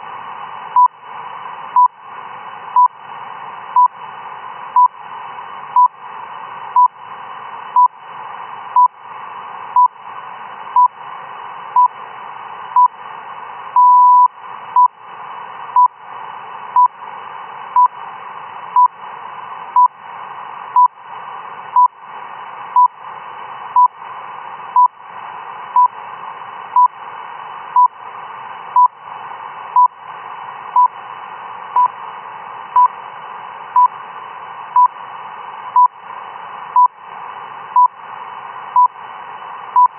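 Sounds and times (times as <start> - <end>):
radio hiss: 0.0 - 39.9
longer radio beep: 13.8 - 14.9
short radio beeps: 13.8 - 14.9.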